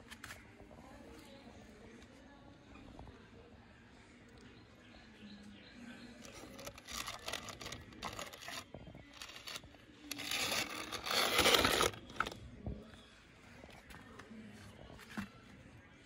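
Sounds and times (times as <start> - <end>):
toy truck scraping through dirt: 6.2 - 12.4.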